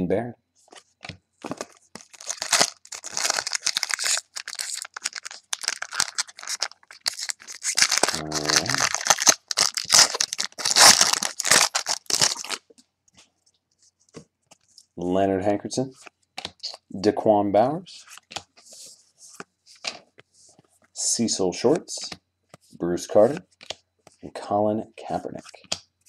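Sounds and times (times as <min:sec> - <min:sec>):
cards rustling: 0:00.7 - 0:12.7
wrapper crinkling and tearing: 0:01.4 - 0:12.6.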